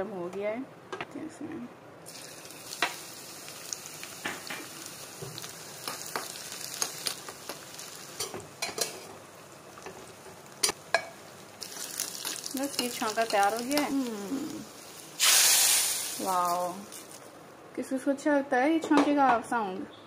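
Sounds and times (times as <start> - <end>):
food sizzling in hot oil: 2.1 - 17.4.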